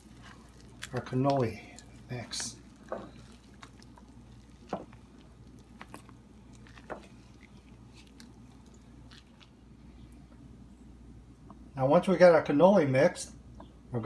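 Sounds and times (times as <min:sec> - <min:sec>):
soft squishing of thick filling: 0:00.0 - 0:10.9.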